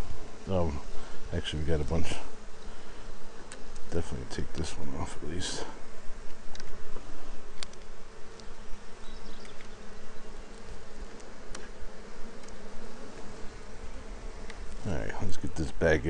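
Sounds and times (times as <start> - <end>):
honey bees buzzing: 0.0 - 16.0
faint sharp clicks: 6.3 - 6.8, 7.5 - 8.5, 9.4 - 9.8, 12.4 - 13.3.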